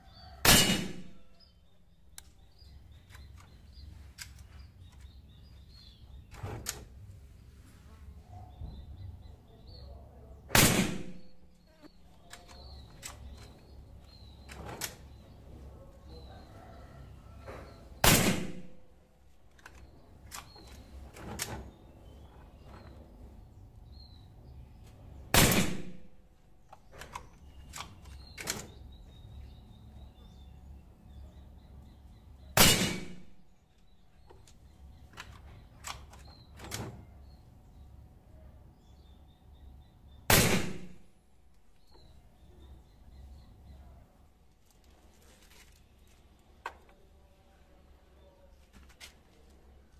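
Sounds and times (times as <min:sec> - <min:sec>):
birds chirping faintly: 0:00.0 - 0:49.9
air rifle shot: 0:00.4 - 0:01.2, 0:10.5 - 0:11.3, 0:18.0 - 0:18.8, 0:25.3 - 0:26.1, 0:32.6 - 0:33.4, 0:40.3 - 0:41.1.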